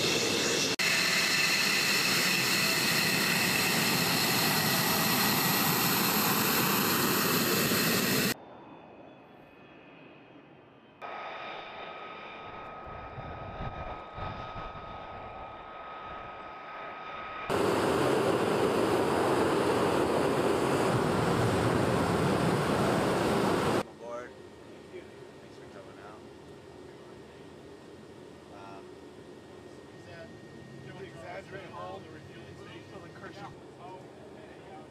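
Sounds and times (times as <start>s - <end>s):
jet engine rush: 0.0s - 23.9s
thin steady whine: 0.0s - 34.9s.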